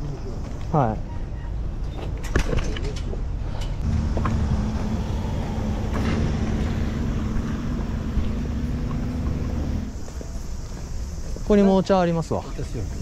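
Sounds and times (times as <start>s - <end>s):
vehicle engine running: 3.8s - 10.1s.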